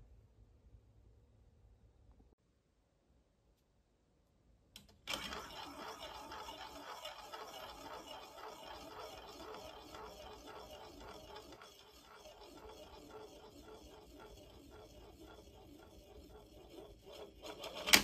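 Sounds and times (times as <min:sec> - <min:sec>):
marble rolling in plastic funnel: 0:05.1 - 0:18.0.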